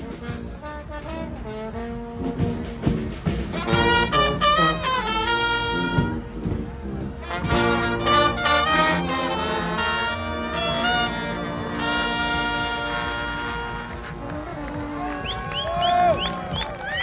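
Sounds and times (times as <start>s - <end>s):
bass drum and cymbals: 0.0s - 17.0s
brass band playing: 0.0s - 17.0s.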